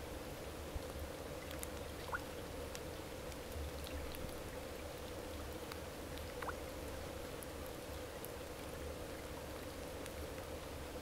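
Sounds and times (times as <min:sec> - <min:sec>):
small drips: 0:00.8 - 0:06.7
water trickling: 0:01.4 - 0:02.4.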